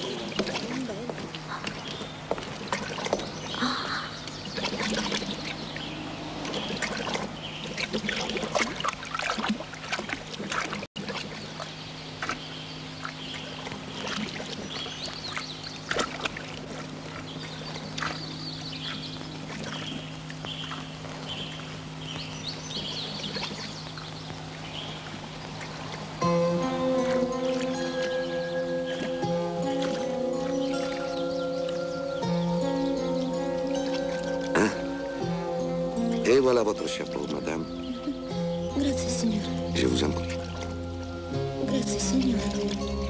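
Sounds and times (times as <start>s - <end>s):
water splashing from wading: 0.0s - 43.0s.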